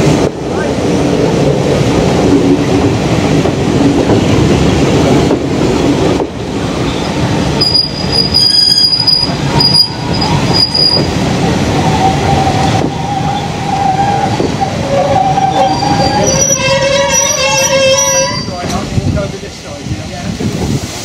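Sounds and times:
train wheels rolling on track: 0.0 - 21.0
wheels squealing on a curve: 7.6 - 11.1, 11.9 - 18.6.

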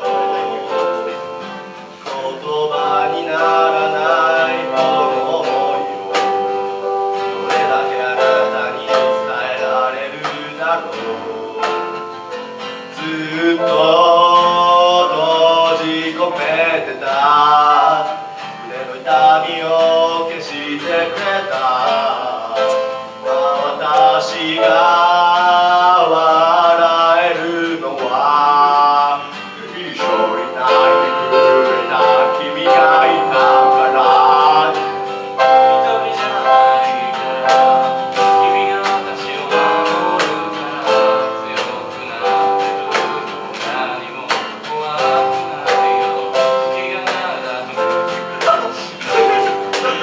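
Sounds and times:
keyboard: 0.0 - 50.0
man singing: 0.0 - 50.0
strummed acoustic guitars: 0.0 - 50.0
cajon hits: 0.8 - 13.2, 36.2 - 50.0.

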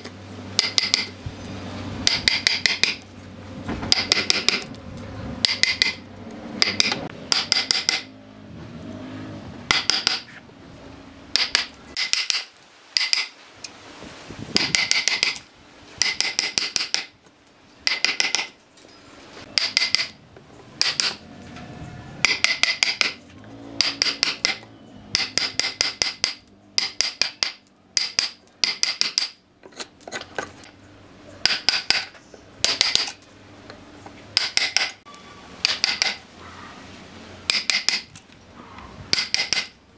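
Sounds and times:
hammer striking steel chisel: 0.0 - 1.2, 2.0 - 3.0, 3.9 - 4.8, 5.4 - 8.1, 9.7 - 10.4, 11.3 - 13.4, 14.6 - 15.4, 16.0 - 17.2, 17.8 - 18.6, 19.4 - 20.2, 20.8 - 21.2, 22.2 - 23.2, 23.8 - 30.8, 31.4 - 33.2, 34.3 - 36.2, 37.4 - 38.2, 39.1 - 39.8.

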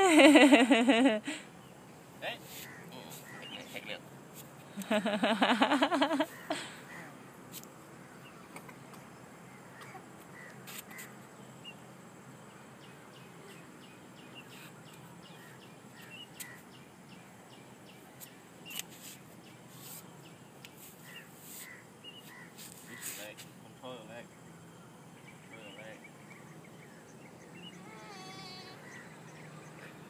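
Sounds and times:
bird chirps: 12.5 - 23.3.

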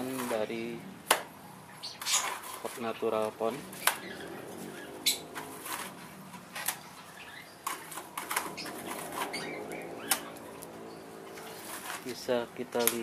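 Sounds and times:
trowel scraping wet plaster: 11.4 - 13.0.

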